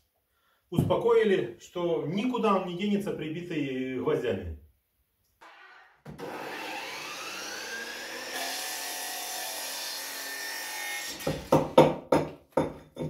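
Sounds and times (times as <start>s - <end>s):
chop saw whine: 5.4s - 11.5s
saw blade cutting board: 5.4s - 11.5s
hammering on wall: 11.2s - 13.0s.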